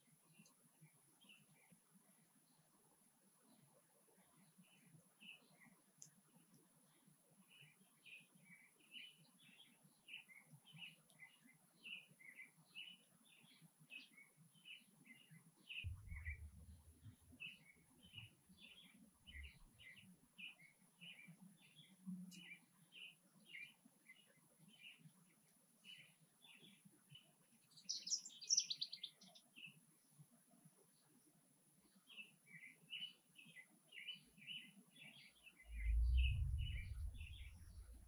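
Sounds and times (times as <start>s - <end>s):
sparrows chirping: 7.0s - 29.9s, 31.9s - 38.0s
low rumble: 15.9s - 17.1s, 35.7s - 38.0s.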